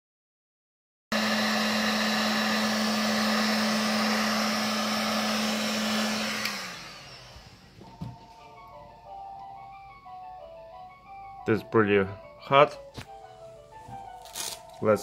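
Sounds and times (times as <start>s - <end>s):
heat gun blowing air: 1.1s - 7.8s
motor winding down: 1.1s - 7.9s.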